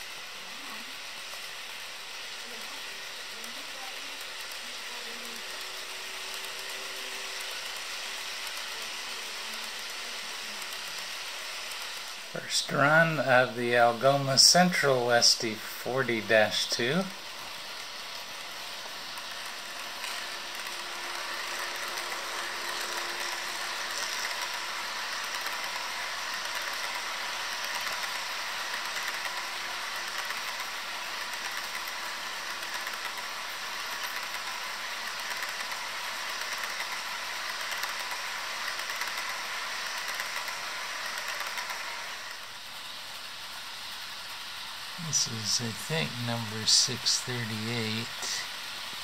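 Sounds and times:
model locomotive motor: 0:00.0 - 0:49.0
model train wheels rattling: 0:00.0 - 0:49.0.

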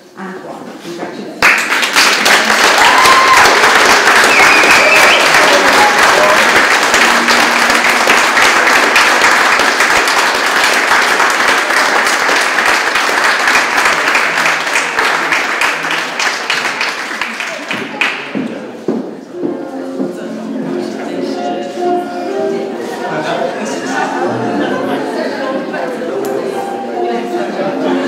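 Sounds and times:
crowd clapping: 0:01.4 - 0:18.5.

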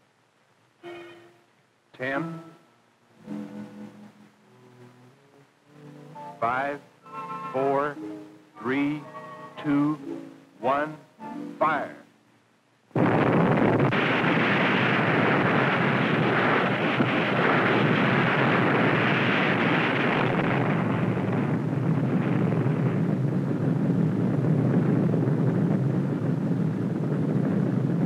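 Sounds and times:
explosion roar on film soundtrack: 0:12.9 - 0:28.0.

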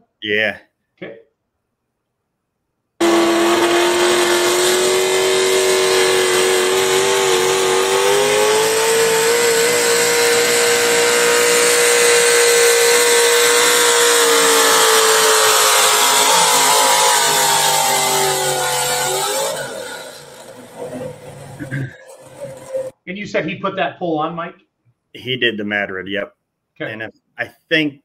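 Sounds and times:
truck engine at high revs: 0:03.0 - 0:22.9.

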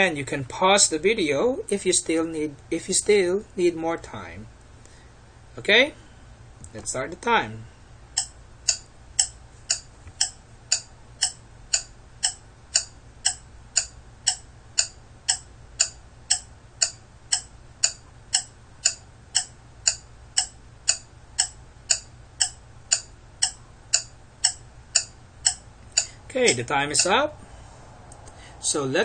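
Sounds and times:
clock ticking: 0:08.2 - 0:27.2.

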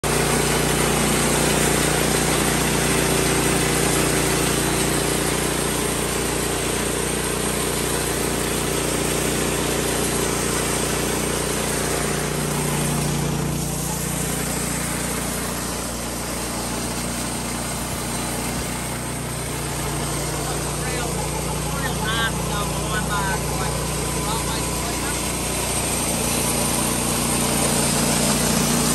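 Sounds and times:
sawmill engine running: 0:00.0 - 0:28.9
band blade cutting wood: 0:10.6 - 0:28.9.

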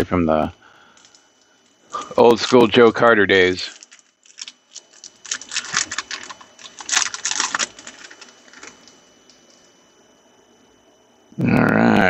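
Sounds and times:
cards and foil wrapper crackling: 0:03.6 - 0:09.0.

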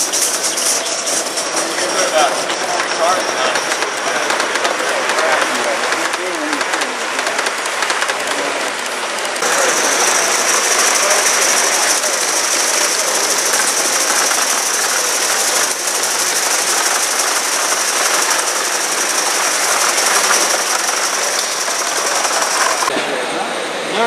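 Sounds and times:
model steam locomotive exhaust beating: 0:00.0 - 0:23.0
steady high hiss: 0:09.4 - 0:22.9.

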